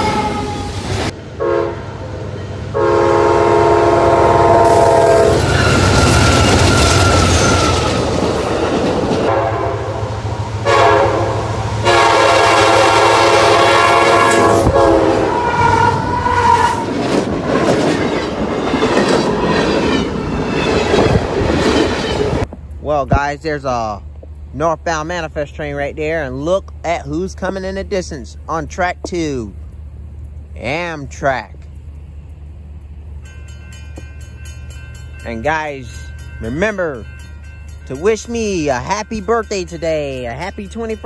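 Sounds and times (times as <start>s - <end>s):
locomotive air horn blasts: 0.0s - 0.8s, 1.4s - 2.0s, 2.7s - 7.9s, 9.3s - 16.8s
freight train rumble: 0.0s - 41.0s.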